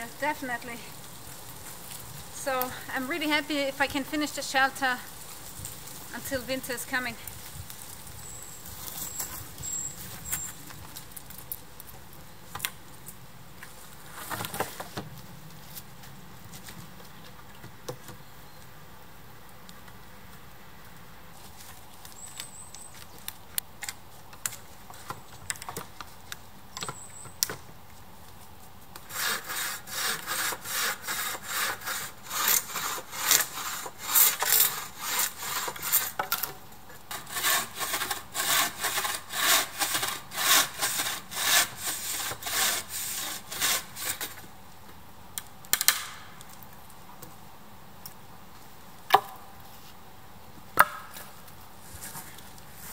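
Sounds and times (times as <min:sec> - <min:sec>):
bow saw cutting wood: 0:29.0 - 0:36.5, 0:37.1 - 0:44.4.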